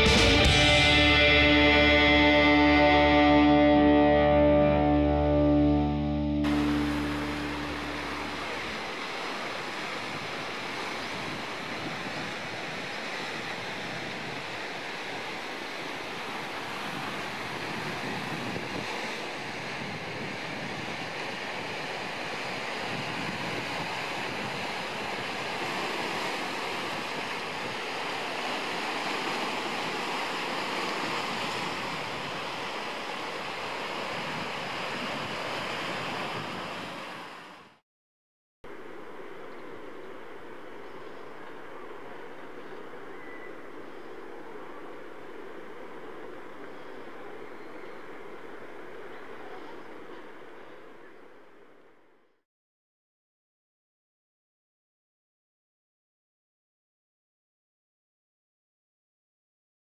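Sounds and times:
waves breaking: 0.0 - 37.8, 38.7 - 51.7
wind on microphone: 9.7 - 32.8, 33.7 - 37.7.

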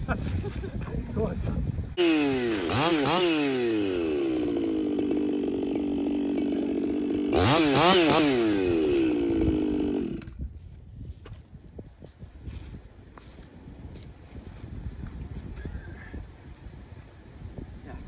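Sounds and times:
chainsaw idling: 2.0 - 10.4
chainsaw throttle blips: 2.0 - 10.4.

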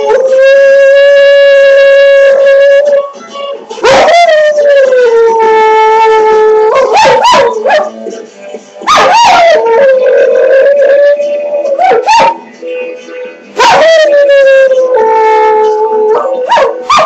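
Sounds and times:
dog howling and yelping: 3.8 - 8.0, 8.9 - 12.4, 13.6 - 17.0.

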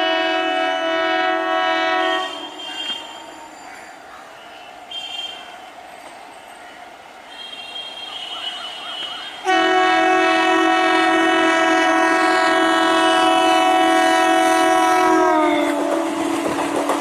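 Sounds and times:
train horn blast: 0.0 - 3.4, 7.4 - 16.4.

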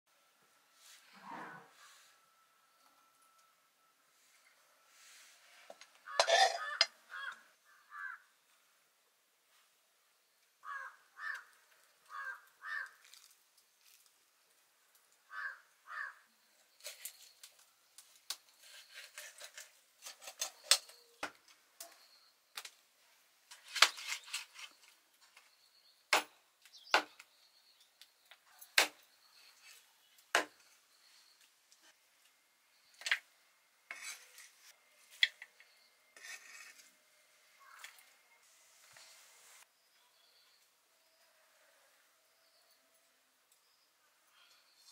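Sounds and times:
knife and utensils knocking: 6.2 - 6.9.

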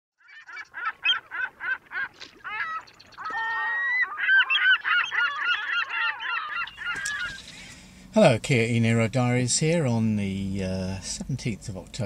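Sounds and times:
flock of birds calling: 0.2 - 7.9.

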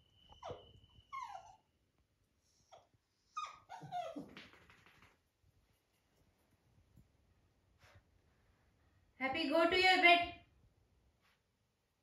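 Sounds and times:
puppy whining: 0.2 - 4.6.

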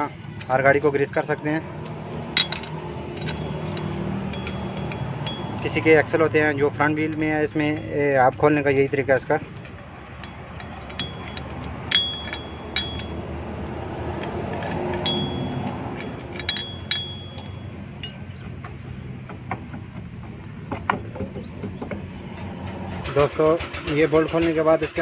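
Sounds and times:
socket wrench clinking on metal: 1.7 - 18.6.

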